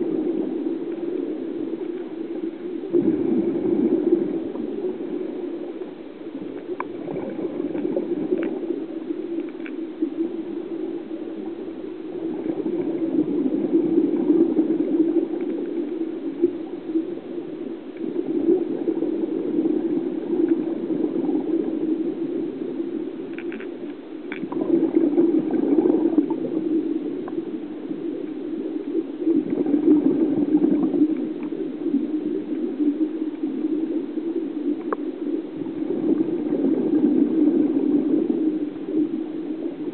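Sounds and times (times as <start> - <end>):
underwater regulator bubbles gurgling: 0.0 - 39.9
faint clicks: 6.4 - 10.6, 15.3 - 16.7, 17.9 - 18.2, 23.0 - 24.7, 30.5 - 35.7.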